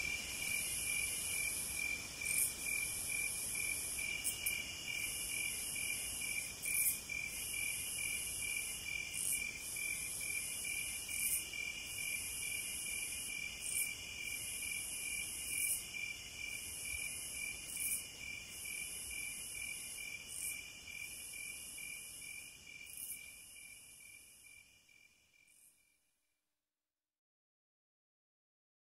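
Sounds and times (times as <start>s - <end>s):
crickets trilling: 0.0s - 25.7s
insect buzz: 0.0s - 26.0s.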